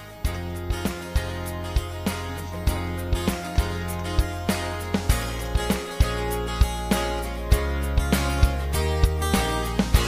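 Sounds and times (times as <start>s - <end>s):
background music with regular beat: 0.0s - 10.0s.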